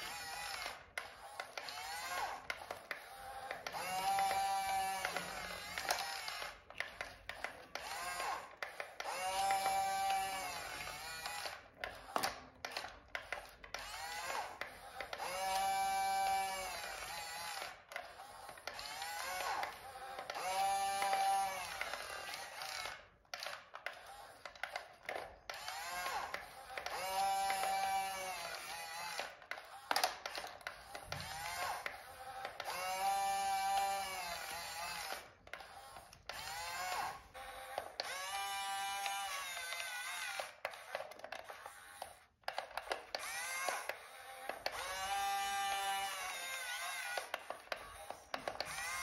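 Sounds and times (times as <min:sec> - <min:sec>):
small electric motors whining: 0:00.0 - 0:49.0
clicking and plastic clatter: 0:02.4 - 0:07.9, 0:10.8 - 0:13.9, 0:21.0 - 0:27.8, 0:28.6 - 0:32.8, 0:39.0 - 0:44.8, 0:47.2 - 0:49.0.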